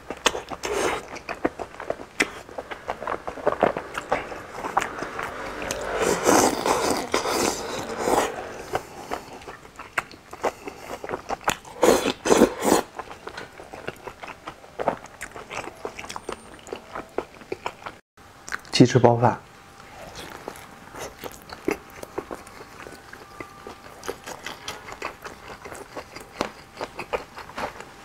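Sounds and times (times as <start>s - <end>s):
wet chewing and mouth smacks: 0.0s - 5.9s, 9.1s - 18.7s, 19.8s - 27.9s
slurping broth: 0.4s - 9.6s, 10.3s - 13.2s.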